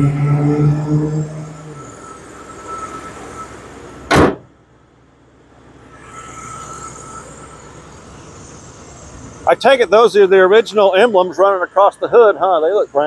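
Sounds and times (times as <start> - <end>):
car hood slamming shut: 4.1 - 4.6.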